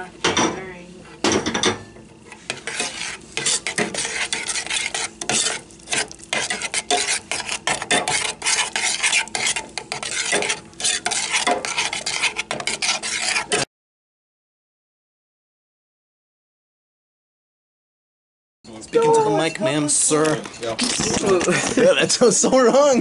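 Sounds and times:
metal spoon scraping saucepan: 0:01.8 - 0:13.7.

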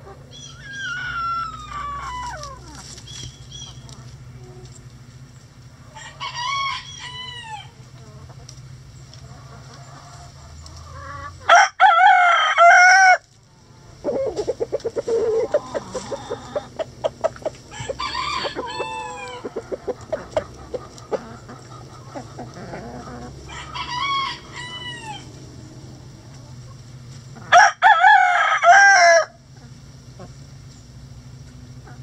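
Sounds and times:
hens squawking: 0:00.0 - 0:04.6, 0:13.8 - 0:27.6
hens clucking: 0:00.0 - 0:28.8, 0:29.4 - 0:32.0
rooster crowing: 0:05.9 - 0:07.8, 0:11.0 - 0:13.2, 0:17.7 - 0:19.9, 0:22.6 - 0:25.3, 0:27.4 - 0:29.4.

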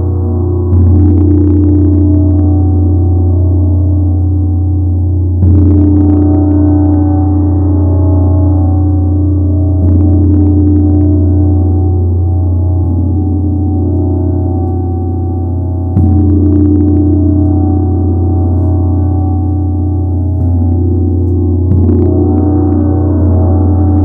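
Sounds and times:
gong struck with mallet: 0:05.4 - 0:24.0.

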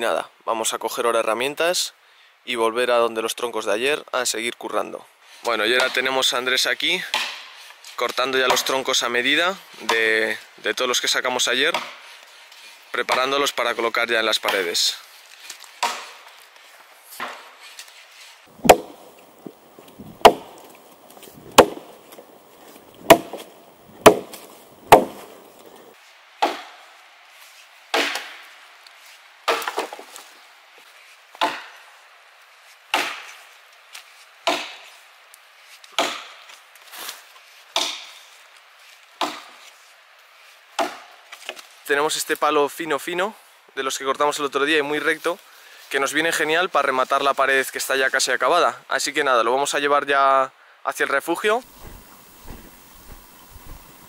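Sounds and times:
axe chopping logs: 0:07.1 - 0:07.5, 0:11.7 - 0:12.0, 0:15.8 - 0:16.2, 0:17.2 - 0:17.5, 0:18.5 - 0:26.8, 0:27.9 - 0:28.4, 0:29.4 - 0:30.1, 0:31.4 - 0:31.8, 0:32.9 - 0:33.4, 0:34.4 - 0:34.8, 0:36.0 - 0:36.4, 0:37.8 - 0:38.1, 0:39.2 - 0:39.6, 0:40.8 - 0:41.1.

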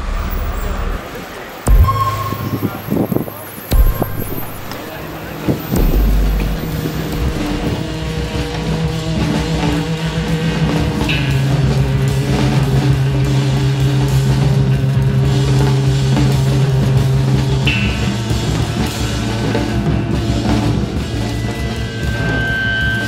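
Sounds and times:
drums and cymbals: 0:00.0 - 0:23.0
electric guitar low notes: 0:01.7 - 0:08.2.

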